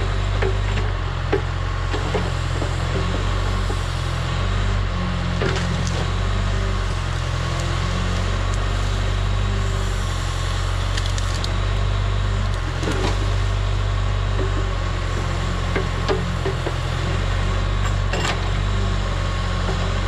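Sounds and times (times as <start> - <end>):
diesel engine running: 0.0 - 20.0
branches cracking and snapping: 5.4 - 13.6.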